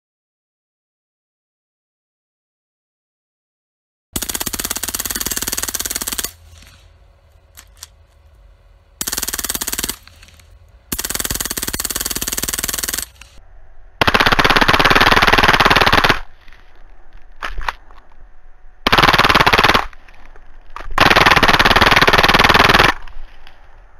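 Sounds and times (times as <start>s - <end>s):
machine gun bursts: 4.2s - 6.6s, 9.0s - 13.4s, 14.0s - 16.3s, 18.9s - 19.9s, 21.0s - 23.0s.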